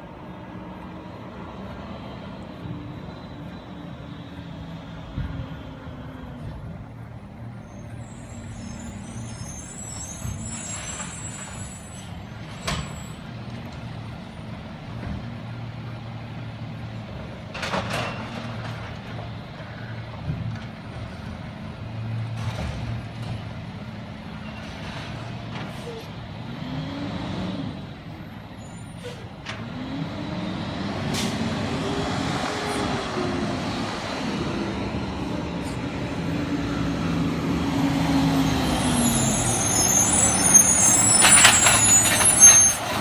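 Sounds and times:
air brake hissing: 28.8 - 29.4.

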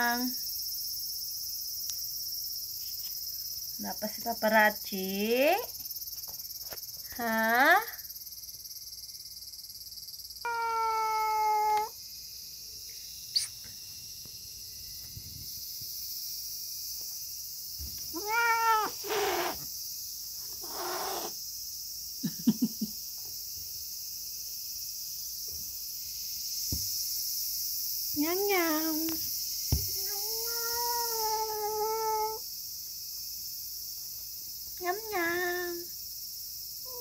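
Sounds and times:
cat chirping: 10.5 - 11.9, 18.2 - 19.6, 20.4 - 21.3
cat meowing: 10.5 - 11.9, 18.1 - 19.6, 20.6 - 21.3, 30.0 - 32.4.

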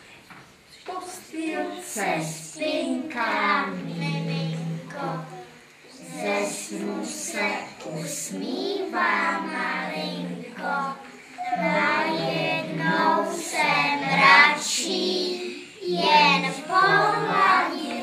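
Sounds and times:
young children singing: 0.8 - 18.0.

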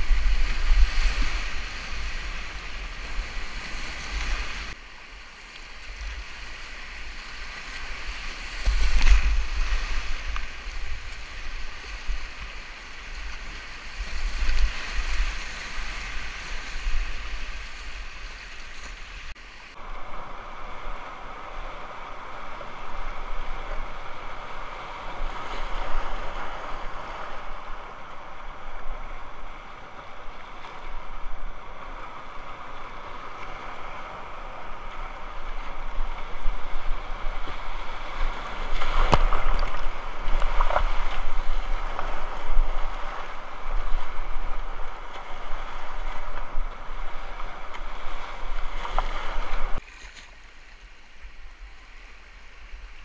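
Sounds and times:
knocks and splashing of boat: 38.2 - 45.3.

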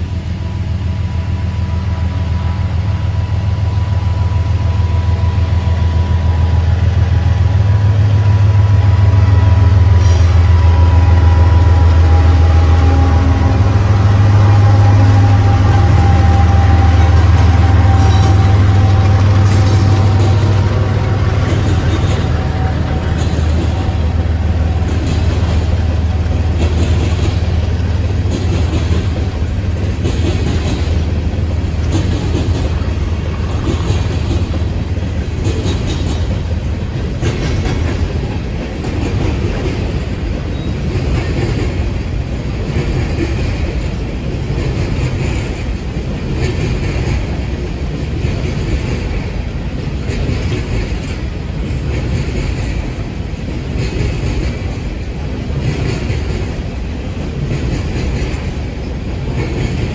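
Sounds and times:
diesel locomotive drone: 0.0 - 59.9
freight train rumble: 0.0 - 59.9
train wheels clickety-clack: 0.0 - 59.9.

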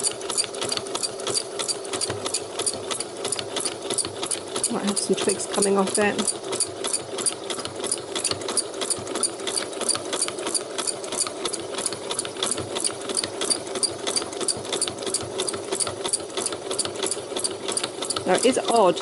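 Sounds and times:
sewing machine motor hum: 0.0 - 19.0
sewing machine needle ticking: 0.0 - 19.0.

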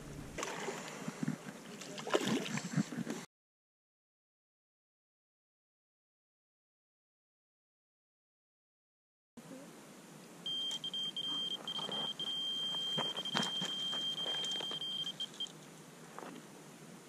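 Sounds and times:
bite alarm high-pitched tone: 10.5 - 15.4.

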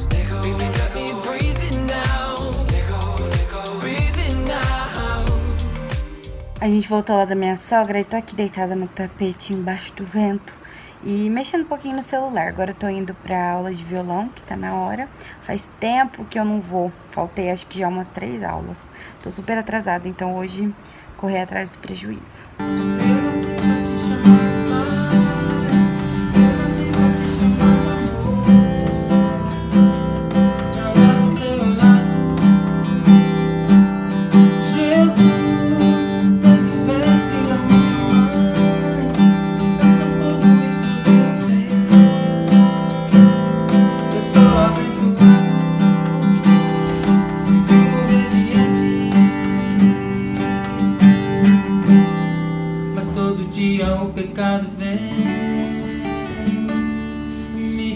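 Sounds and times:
acoustic guitar strumming: 0.0 - 7.0, 22.5 - 57.9.

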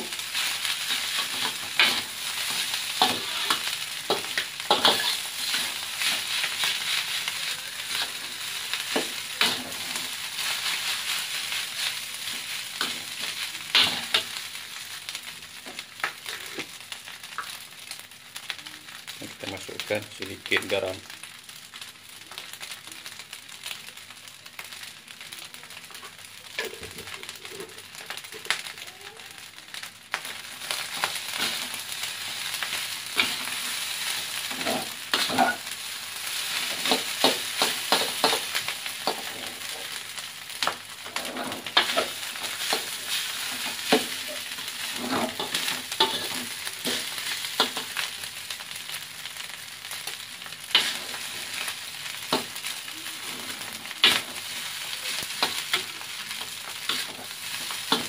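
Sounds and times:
rice sizzling in a wok: 0.0 - 58.0
metal spatula scraping pan: 4.2 - 6.2.

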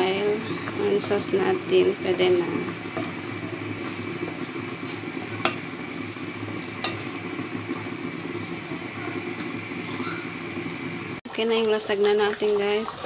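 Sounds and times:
sauce sizzling in a pan: 0.0 - 13.0
wooden spatula stirring sauce: 0.2 - 5.8.

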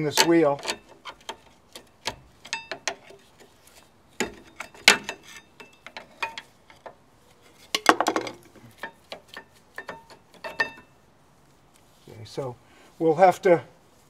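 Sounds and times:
screwdriver clinking on brake pad: 0.1 - 3.5.

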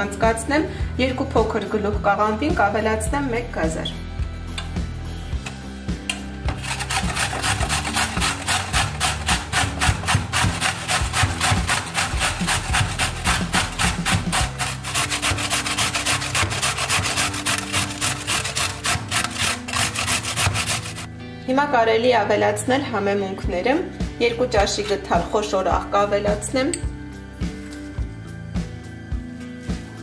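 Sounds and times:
carrot grating on metal grater: 6.5 - 21.1.

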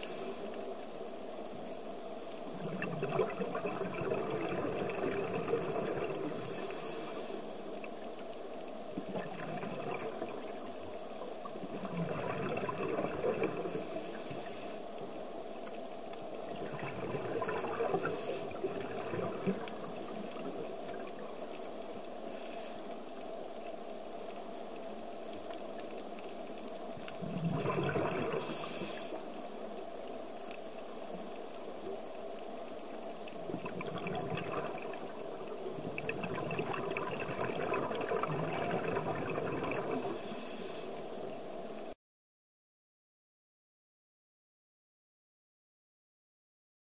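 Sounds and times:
regulator breathing hiss: 0.0 - 0.6, 6.2 - 7.5, 13.7 - 14.9, 18.0 - 18.5, 22.2 - 22.9, 28.4 - 29.3, 40.0 - 41.0
exhaled bubbles rushing: 2.5 - 6.5, 9.0 - 14.0, 16.4 - 21.5, 27.0 - 28.7, 33.3 - 40.2.

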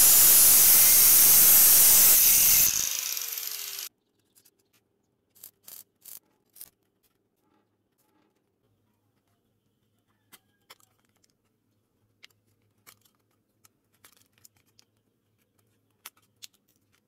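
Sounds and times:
angle grinder cutting steel: 0.0 - 3.9
grinder winding down whine: 0.0 - 3.9
welder arc crackles: 0.0 - 3.9.

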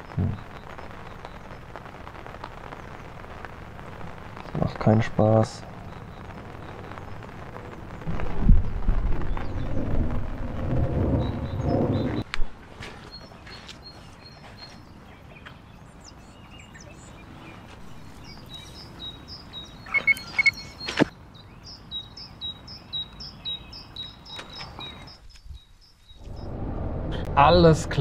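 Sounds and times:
rain hissing: 0.0 - 12.3, 15.9 - 25.2, 26.2 - 28.0
songbird chirping: 10.9 - 26.6.

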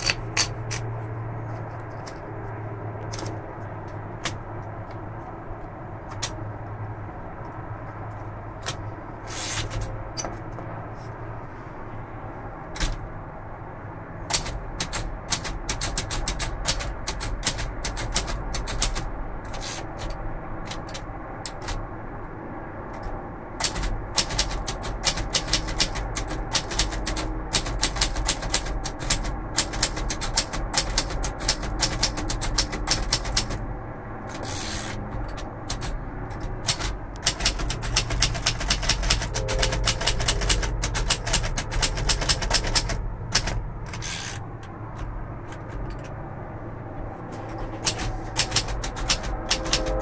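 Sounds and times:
typewriter keystrokes clacking: 3.0 - 3.4, 8.6 - 10.2, 12.8 - 13.0, 14.3 - 21.8, 22.9 - 33.6, 34.3 - 44.4, 47.4 - 50.0.

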